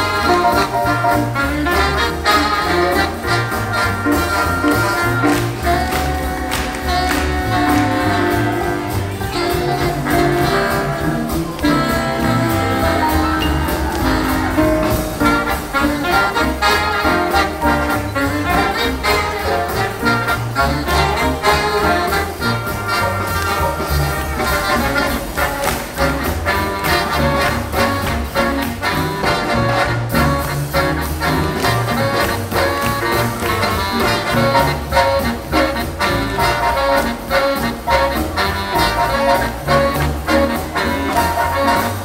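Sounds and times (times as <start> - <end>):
big band swing music: 0.0 - 42.0.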